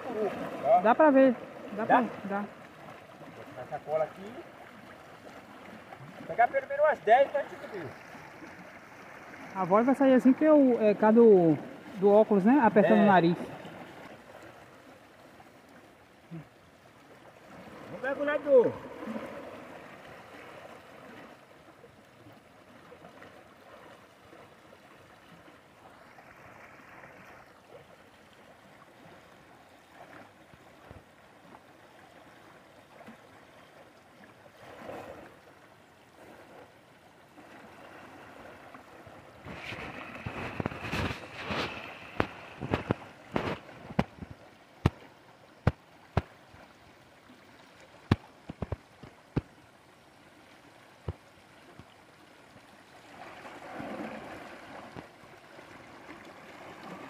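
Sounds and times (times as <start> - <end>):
river water running over rocks: 0.0 - 57.0
raindrop taps: 45.6 - 46.3, 48.1 - 49.5.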